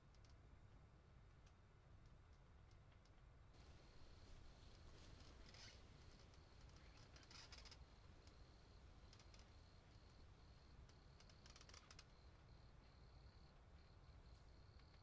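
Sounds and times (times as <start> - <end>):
faint insect trill: 3.6 - 15.0
raspy insect ticks: 5.4 - 15.0.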